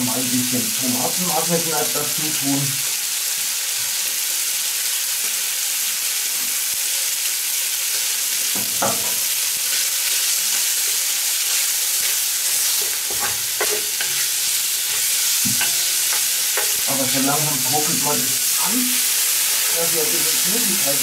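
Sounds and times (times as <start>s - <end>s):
meat sizzling in a pot: 0.0s - 21.0s
wooden spatula scraping a pot: 9.7s - 17.4s.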